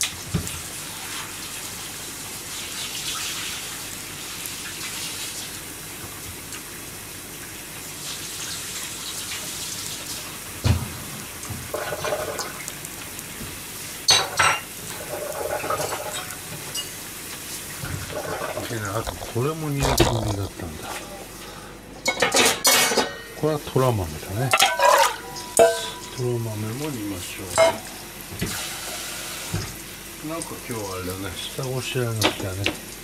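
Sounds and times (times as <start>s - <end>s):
water running in kitchen sink: 0.0s - 33.0s
dishes and pans clinking: 14.1s - 17.0s, 22.0s - 23.4s, 24.5s - 26.2s, 27.5s - 27.9s.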